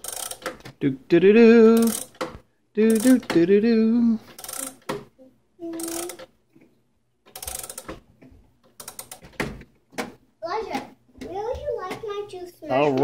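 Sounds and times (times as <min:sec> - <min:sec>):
clock winding ratchet clicking: 0:00.0 - 0:00.6, 0:01.7 - 0:03.4, 0:04.3 - 0:05.0, 0:05.7 - 0:06.3, 0:07.3 - 0:08.0, 0:08.8 - 0:09.3.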